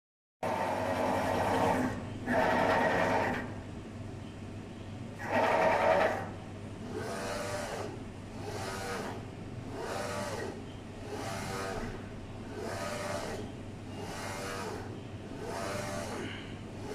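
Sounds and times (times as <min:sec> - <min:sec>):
low machine hum: 0:00.4 - 0:16.9
printer carriage motor whining: 0:06.9 - 0:16.9.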